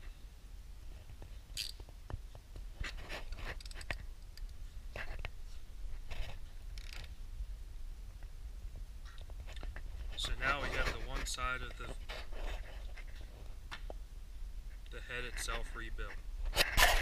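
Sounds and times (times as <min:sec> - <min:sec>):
low steady hum: 0:00.0 - 0:17.0
socket ratchet clicking: 0:01.6 - 0:01.8.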